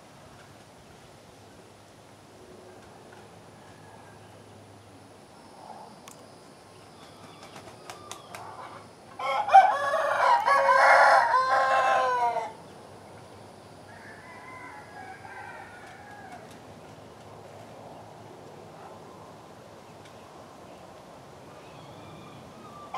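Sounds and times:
rooster crowing: 3.5s - 4.3s, 8.7s - 12.6s, 13.9s - 16.5s.

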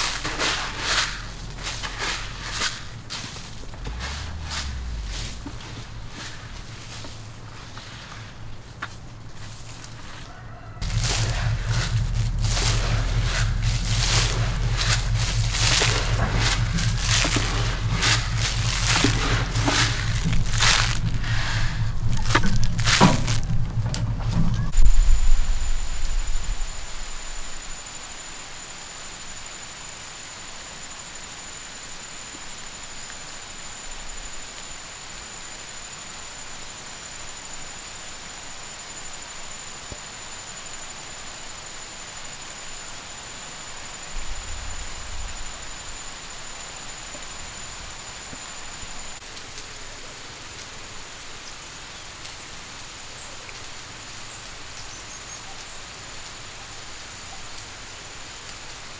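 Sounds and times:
thin high whine: 0.0s - 8.8s, 10.8s - 49.2s
low rumble: 0.0s - 9.9s, 10.8s - 27.8s
sprinklers spraying water: 0.0s - 27.7s, 30.5s - 58.9s.

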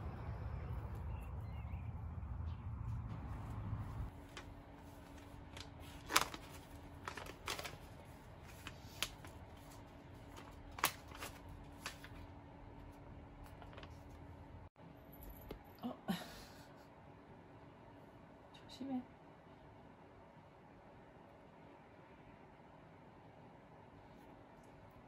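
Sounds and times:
faint steady hum: 0.0s - 25.0s
paper package crinkling: 4.1s - 12.3s, 13.4s - 14.3s.

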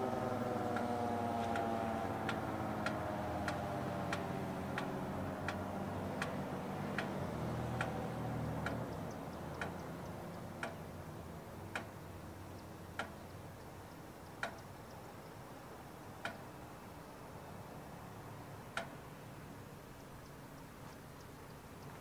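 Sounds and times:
siren winding down: 0.0s - 5.1s
sharp single ticks: 0.7s - 16.6s, 18.7s - 19.1s.

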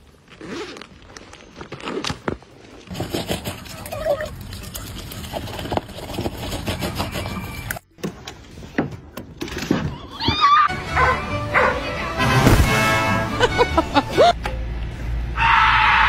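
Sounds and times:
dogs barking and yipping: 10.4s - 11.9s
music: 10.7s - 14.3s.

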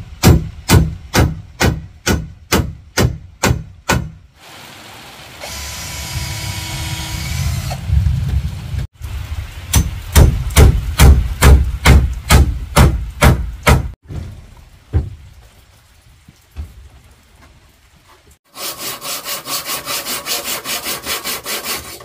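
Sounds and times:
hand tool striking wood: 0.2s - 4.2s, 9.7s - 14.0s.

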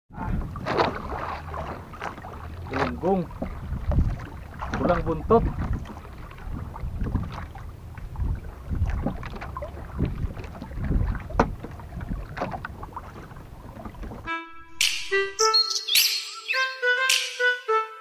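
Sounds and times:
wind on microphone: 0.1s - 14.3s
water slapping boat hull: 0.2s - 14.3s
music: 14.3s - 18.0s.

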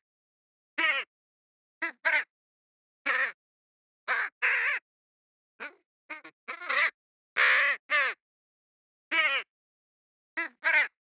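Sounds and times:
crow cawing: 0.8s - 1.1s, 1.8s - 2.3s, 3.1s - 3.4s, 4.1s - 4.8s, 5.6s - 8.2s, 9.1s - 9.5s, 10.4s - 11.0s.

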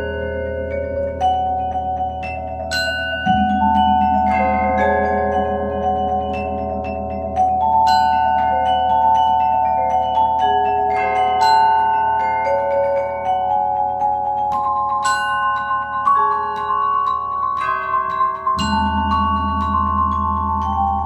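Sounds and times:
bell-like strike: 0.0s - 10.2s, 16.4s - 21.0s
mallet keyboard notes ringing: 0.0s - 21.0s.

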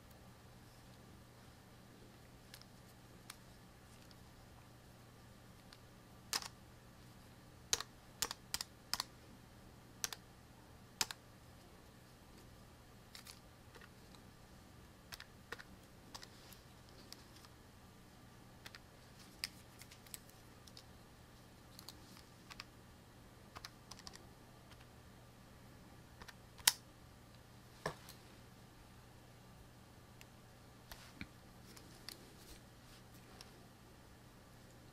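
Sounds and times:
faint low hum: 0.0s - 34.9s
calculator keys clicking: 6.3s - 6.5s, 7.8s - 9.1s, 23.6s - 24.8s.

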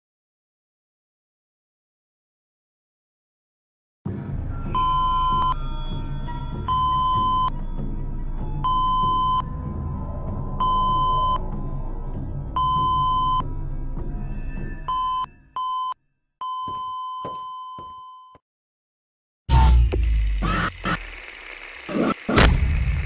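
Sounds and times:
heart monitor beeping: 4.8s - 5.6s, 6.7s - 7.5s, 8.6s - 9.4s, 10.6s - 11.4s, 12.6s - 13.4s, 14.9s - 18.4s.

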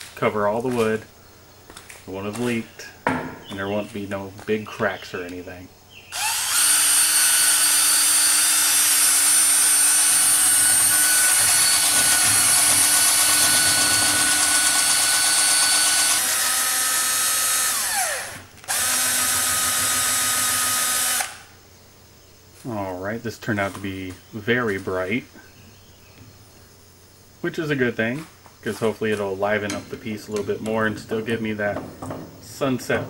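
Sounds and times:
electric drill mixing resin: 6.1s - 21.5s.

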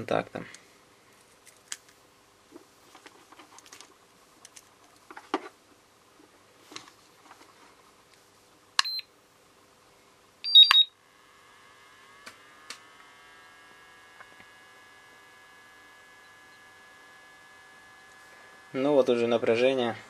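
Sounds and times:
faint high whine: 10.0s - 20.0s
charger beeping: 10.4s - 10.9s.

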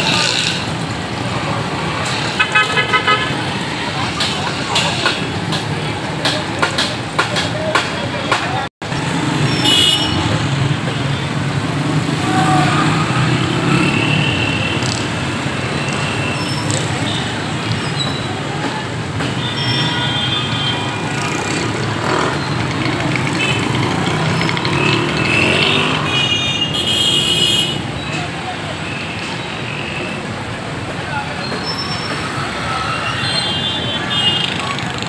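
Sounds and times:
indistinct crowd voices: 0.0s - 26.2s
road traffic and engines: 0.0s - 35.0s.

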